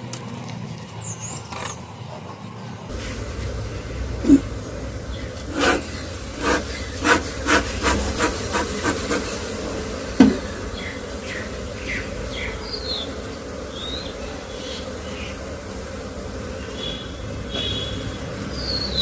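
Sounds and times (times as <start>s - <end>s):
bees buzzing: 1.0s - 19.0s
bellows smoker puffing: 2.9s - 13.7s
knock on wooden hive: 10.1s - 10.6s.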